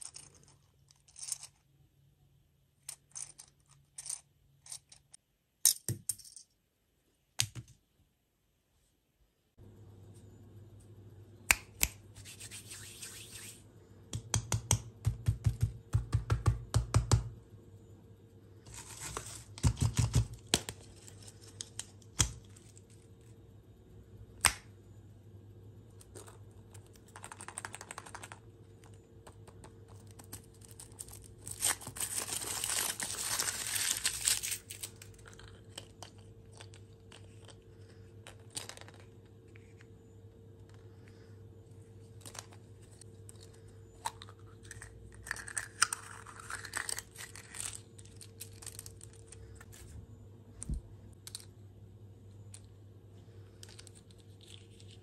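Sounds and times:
fingers tapping candy cases: 14.1s - 17.3s, 19.6s - 20.8s, 26.2s - 30.5s
wrapper crinkling: 30.4s - 35.6s
wrapper tearing: 30.6s - 35.2s.

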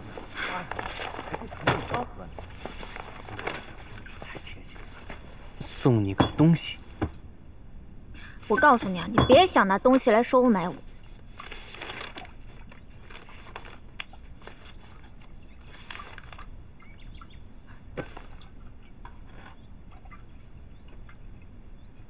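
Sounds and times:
soft rustles: 0.0s - 5.8s, 10.0s - 17.0s
faint bird chirps: 14.1s - 22.0s.

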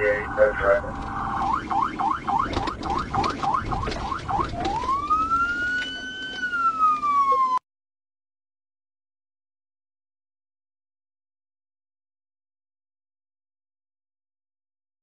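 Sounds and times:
car road noise: 0.0s - 7.4s
police siren: 0.0s - 7.6s.

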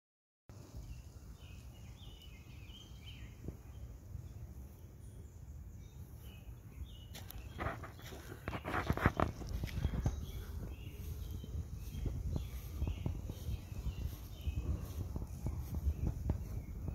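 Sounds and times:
wind rumble on microphone: 0.5s - 16.9s
bird chirping: 0.6s - 16.9s
rustling noise: 7.1s - 16.9s.

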